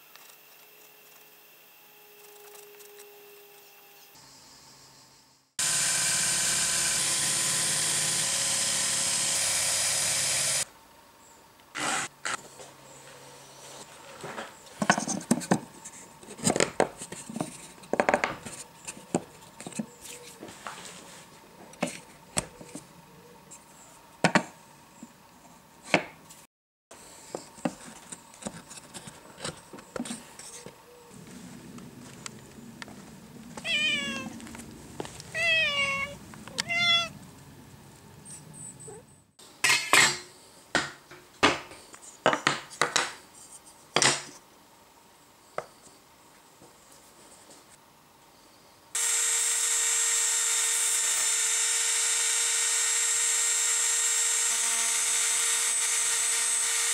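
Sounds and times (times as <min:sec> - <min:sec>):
cat meowing: 0:33.6 - 0:34.4, 0:35.3 - 0:37.2.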